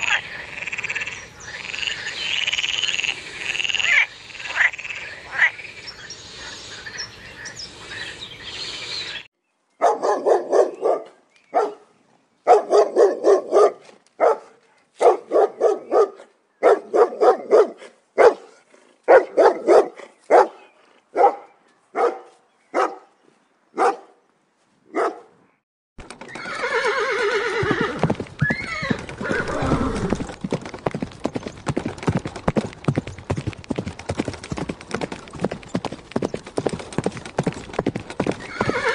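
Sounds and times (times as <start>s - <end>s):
frog croaking: 0.0s - 6.6s
dog barking: 9.8s - 23.1s, 23.8s - 24.2s, 24.9s - 25.4s
clip-clop of hooves: 26.0s - 38.9s
horse whinnying: 26.2s - 30.3s, 38.3s - 38.9s.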